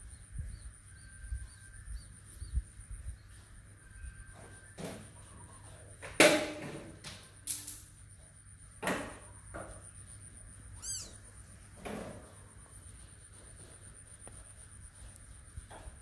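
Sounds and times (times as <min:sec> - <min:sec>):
kittens scuffling on concrete: 0:09.5 - 0:16.0.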